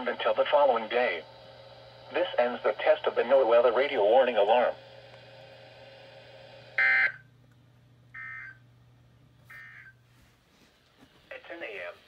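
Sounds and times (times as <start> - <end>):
radio data bursts: 6.8 - 7.2, 9.5 - 10.0.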